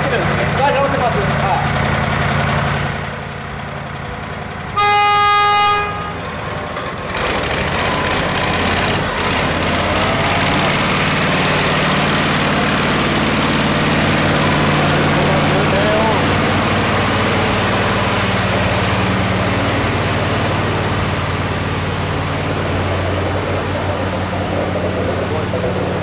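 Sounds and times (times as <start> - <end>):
tractor engine running: 0.0 - 26.0
tractor horn toot: 4.8 - 6.4.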